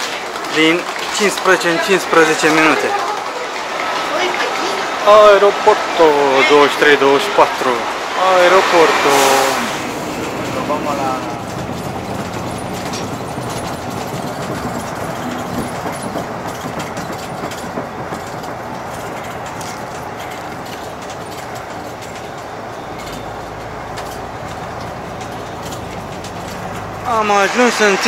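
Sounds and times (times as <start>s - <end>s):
bus engine and road rumble: 0.0s - 28.0s
light clicks and rattles: 11.3s - 27.0s.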